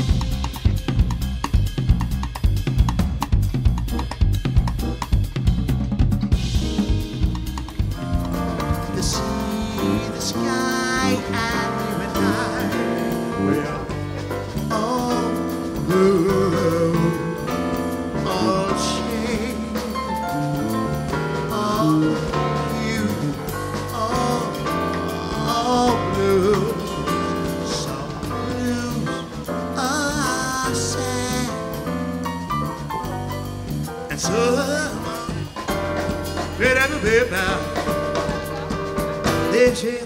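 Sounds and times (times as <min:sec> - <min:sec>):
live band playing: 0:00.0 - 0:40.0
man singing: 0:08.5 - 0:31.9, 0:34.1 - 0:35.7, 0:36.4 - 0:40.0.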